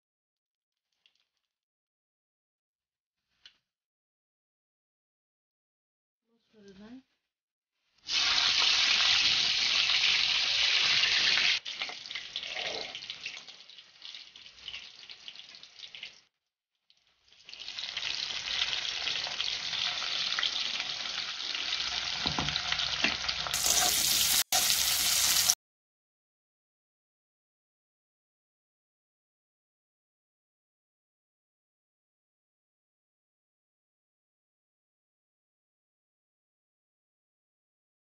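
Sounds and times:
spices sizzling in hot oil: 0:08.0 - 0:25.6
onions sizzling in oil: 0:08.1 - 0:16.2, 0:17.3 - 0:25.6.

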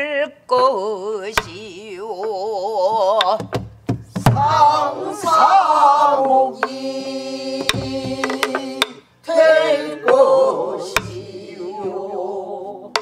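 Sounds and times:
barrel drum strokes: 0:03.5 - 0:09.0, 0:10.0 - 0:12.0
person singing with wide vibrato: 0:04.2 - 0:13.0
several voices singing together: 0:04.2 - 0:13.0.

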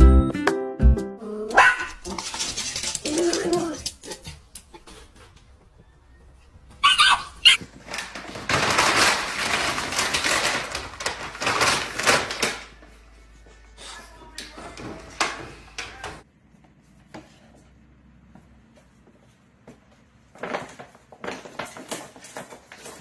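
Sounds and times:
dog barking: 0:01.5 - 0:02.0, 0:06.8 - 0:07.6
plastic bag crinkling: 0:07.6 - 0:12.8.

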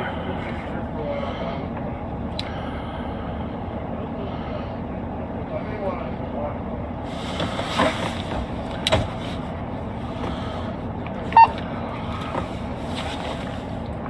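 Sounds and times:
car engine idling: 0:00.0 - 0:14.0
short electronic beep: 0:11.3 - 0:11.6.

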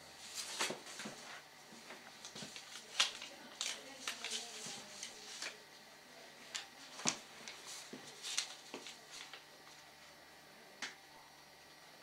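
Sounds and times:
faint clicks and rustles: 0:00.3 - 0:05.7.

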